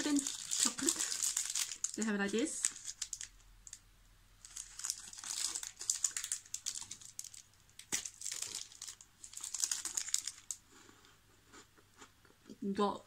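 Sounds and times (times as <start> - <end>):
plastic wrapper crackling: 0.0 - 3.8, 4.4 - 10.6.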